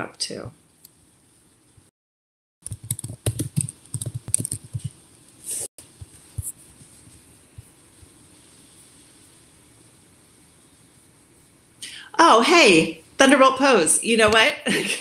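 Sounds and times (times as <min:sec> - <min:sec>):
typing on computer keyboard: 0:02.6 - 0:05.0.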